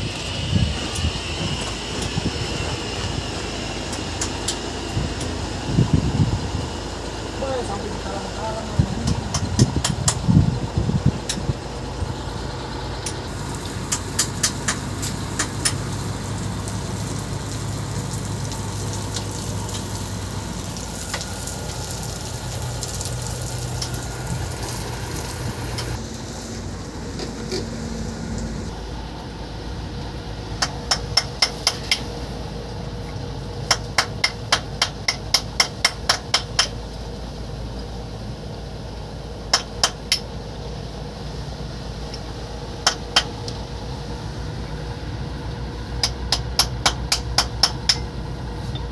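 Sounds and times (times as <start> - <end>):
truck engine running: 0.0 - 48.9.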